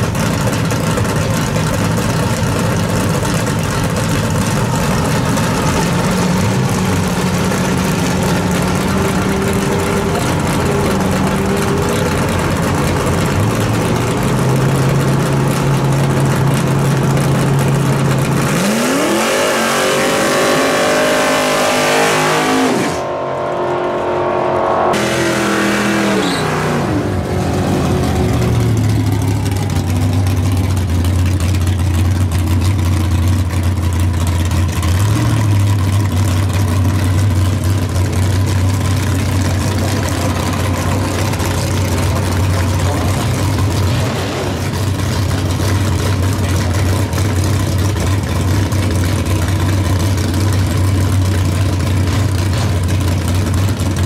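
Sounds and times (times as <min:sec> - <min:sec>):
another drag car idling: 0:00.0 - 0:23.7, 0:26.8 - 0:54.0
drag car engine idling: 0:00.0 - 0:24.2, 0:26.8 - 0:54.0
engine revving hard: 0:18.3 - 0:28.8.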